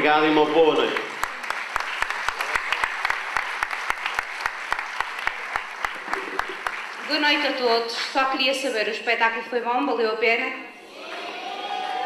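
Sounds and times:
audience applauding: 0:00.0 - 0:08.2, 0:10.9 - 0:12.0
close sharp claps: 0:00.6 - 0:07.2.

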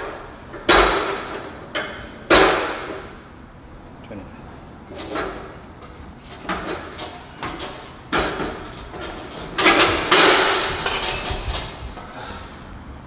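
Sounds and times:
metal gym equipment clanking: 0:06.8 - 0:11.8.

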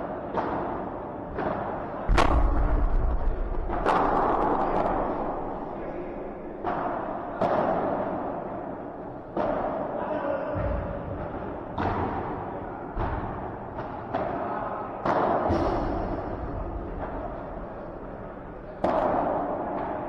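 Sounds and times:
ball hitting paddles: 0:00.3 - 0:09.8.

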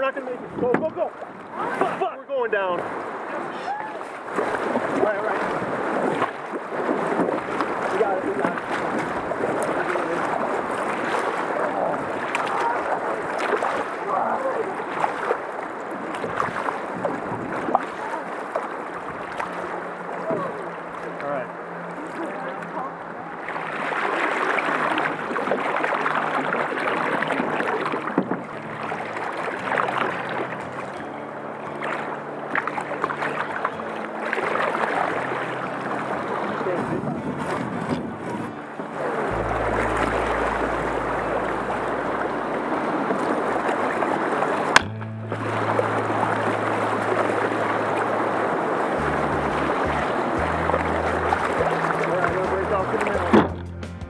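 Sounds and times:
paddles splashing water: 0:00.0 - 0:54.0
river rapids rushing: 0:01.1 - 0:53.4
low hum: 0:39.1 - 0:43.5, 0:44.8 - 0:54.0.

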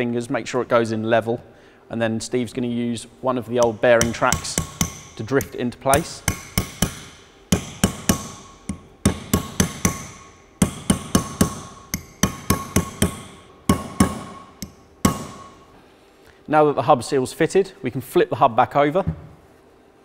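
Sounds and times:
hammer blows on metal: 0:03.6 - 0:15.7.

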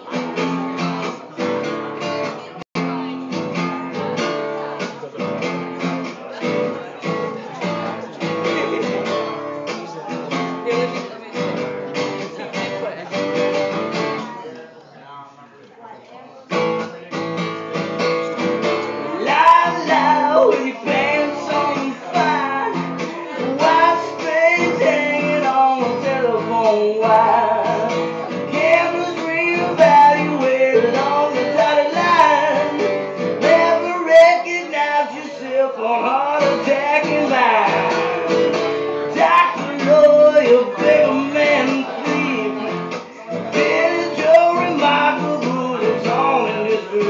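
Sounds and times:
acoustic guitar strumming: 0:00.0 - 0:14.5, 0:16.5 - 0:47.0
person singing: 0:18.7 - 0:47.0.

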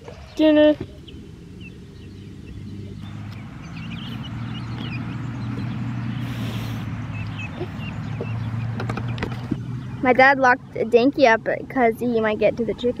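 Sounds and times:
rustle: 0:00.0 - 0:09.9
chicks peeping: 0:00.0 - 0:10.2
low steady rumble: 0:00.0 - 0:13.0.

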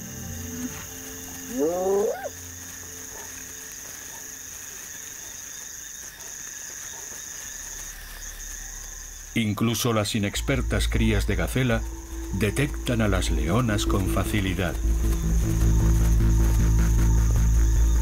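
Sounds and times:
night insects chirring: 0:00.0 - 0:18.0
wild animal call rising: 0:01.5 - 0:02.4.

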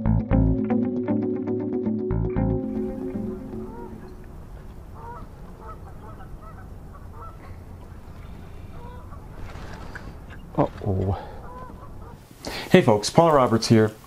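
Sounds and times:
geese honking: 0:02.6 - 0:10.4, 0:11.1 - 0:12.2.

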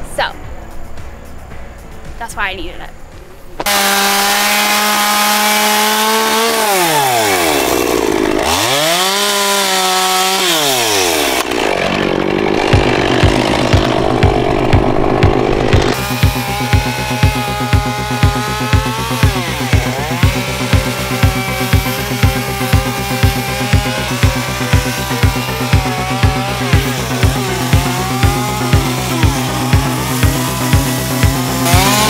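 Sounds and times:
background music with steady beat: 0:00.0 - 0:03.7, 0:12.6 - 0:32.0
chainsaw revving and cutting wood: 0:03.6 - 0:32.0.

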